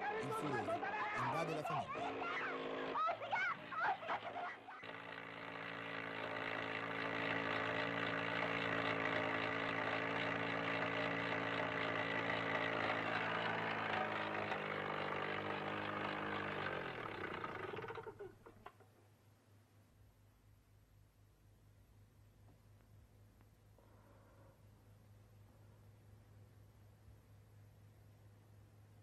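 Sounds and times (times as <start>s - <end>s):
motor running and winding down: 0.1s - 18.5s.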